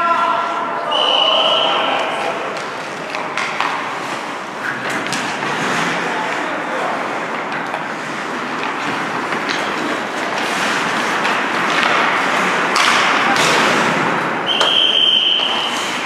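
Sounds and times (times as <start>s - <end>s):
whistle blast: 0.9s - 2.1s, 14.4s - 16.0s
skate blades scraping ice: 2.3s - 16.0s
sticks and pucks knocking: 2.4s - 16.0s.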